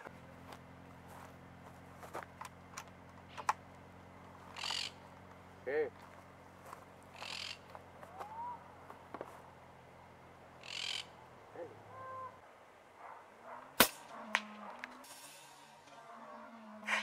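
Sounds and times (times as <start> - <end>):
parakeet squawk: 4.5 - 5.0, 7.2 - 8.6, 10.6 - 11.2
air rifle shot: 13.8 - 15.6.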